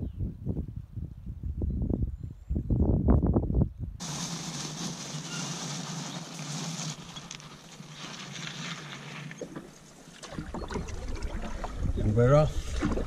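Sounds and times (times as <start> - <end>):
wind hiss: 4.0 - 8.4.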